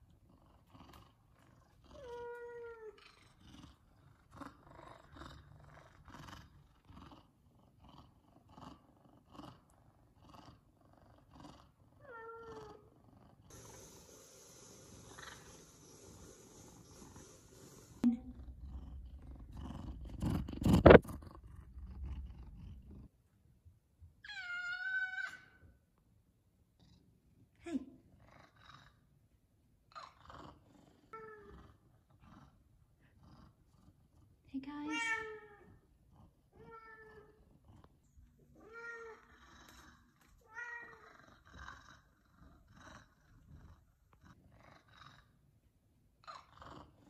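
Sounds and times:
cat rubbing against phone: 0:13.5 - 0:18.0
cat meowing: 0:24.2 - 0:25.6.

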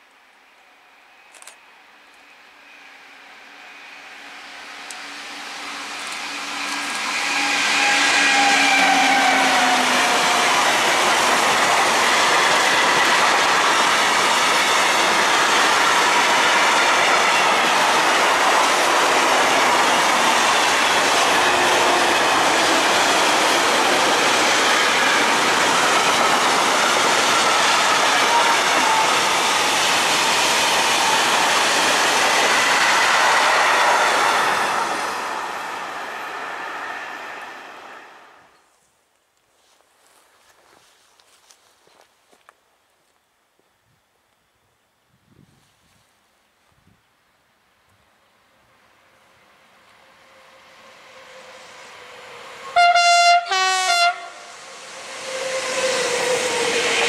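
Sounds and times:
locomotive tones sliding down: 0:02.2 - 0:38.6, 0:49.9 - 0:57.0
train wheels rattling on rails: 0:03.8 - 0:38.0, 0:54.4 - 0:57.0.

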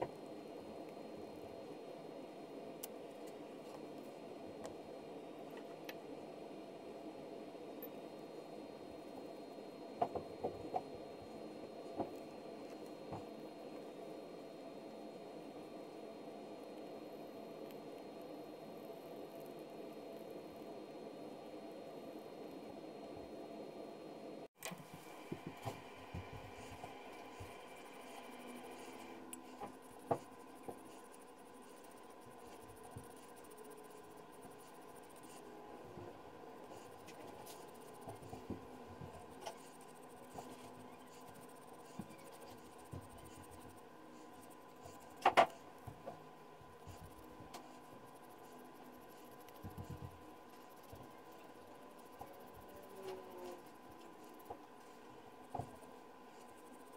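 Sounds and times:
dauber rubbing on leather: 0:24.9 - 0:35.6, 0:36.6 - 0:45.8.

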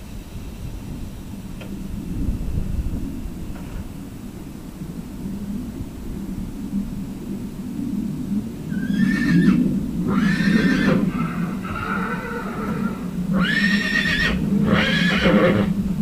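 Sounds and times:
steady low rumble: 0:00.0 - 0:16.0
horse whinnying: 0:08.7 - 0:15.7.

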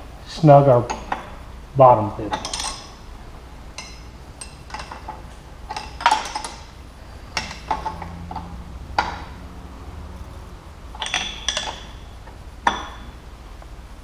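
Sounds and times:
wrench clinking on metal fittings: 0:02.3 - 0:03.0, 0:03.8 - 0:06.7, 0:07.3 - 0:09.2, 0:11.0 - 0:12.0.

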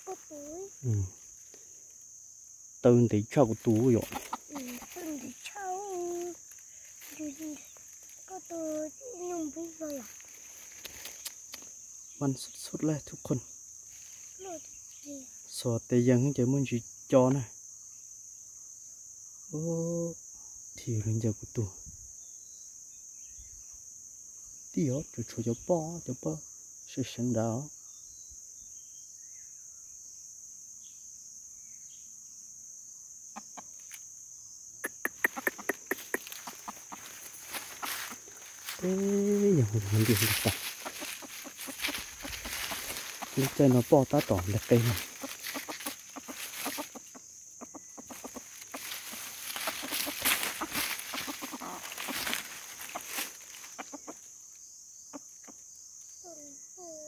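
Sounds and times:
dry leaves crackling: 0:00.0 - 0:01.9, 0:03.4 - 0:11.7, 0:13.8 - 0:15.2, 0:35.3 - 0:54.3
high-pitched insect chorus: 0:00.0 - 0:57.0
faint bird chirps: 0:02.8 - 0:30.0, 0:33.3 - 0:57.0
roosters clucking: 0:03.2 - 0:11.5, 0:33.4 - 0:33.9, 0:34.8 - 0:54.5.

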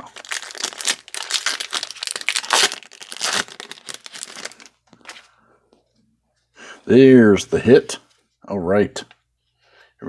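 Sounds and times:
foil wrapper crinkling and tearing: 0:00.0 - 0:04.8.

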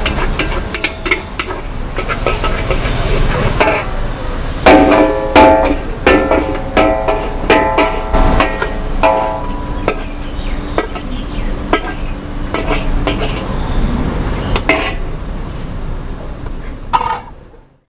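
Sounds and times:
metal spatula clanging on wok: 0:00.0 - 0:04.0, 0:04.6 - 0:11.1, 0:11.7 - 0:13.4, 0:14.6 - 0:15.1, 0:16.9 - 0:17.4
steady frying hiss: 0:00.0 - 0:17.5.

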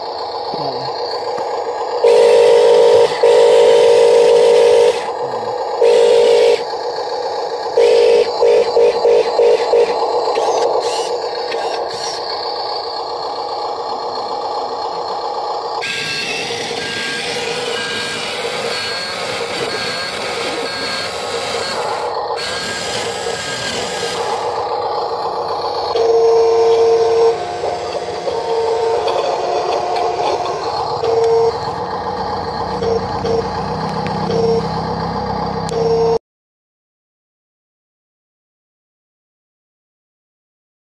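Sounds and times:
electric motor whir: 0:00.3 - 0:13.2, 0:15.6 - 0:36.2
steady electronic tone: 0:00.6 - 0:06.7, 0:07.7 - 0:12.7, 0:15.8 - 0:36.2
electronic beeps: 0:16.6 - 0:23.7, 0:32.8 - 0:33.6, 0:34.2 - 0:34.8.

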